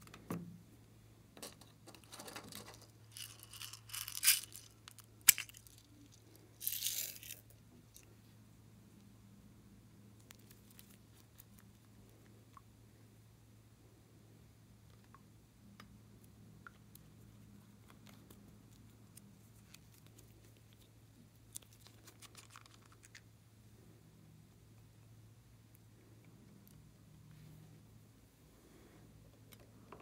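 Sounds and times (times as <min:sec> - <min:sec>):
plastic crinkling and rustling: 0:01.4 - 0:08.0
plastic beads rattling: 0:01.5 - 0:08.0.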